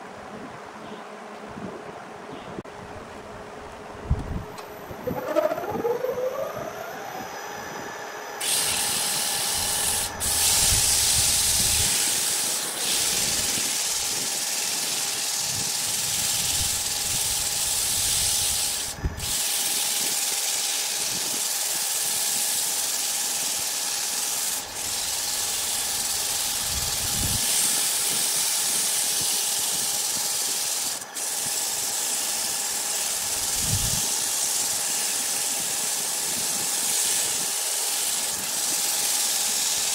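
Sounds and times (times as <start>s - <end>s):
lathe motor whine: 4.4s - 39.9s
sandpaper hissing on spinning wood: 8.4s - 39.9s.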